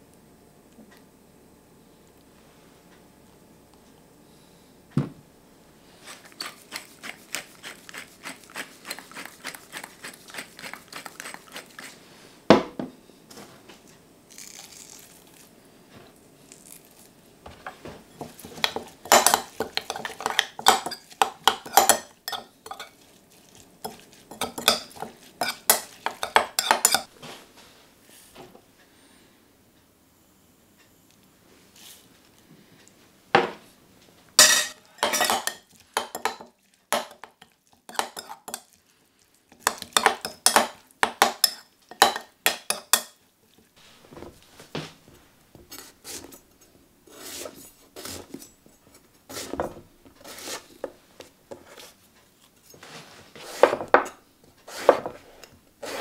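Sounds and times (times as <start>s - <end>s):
spoon clinking in glass bowl: 18.6s - 23.0s, 23.8s - 27.1s, 34.4s - 36.4s, 37.9s - 38.7s, 39.6s - 43.2s.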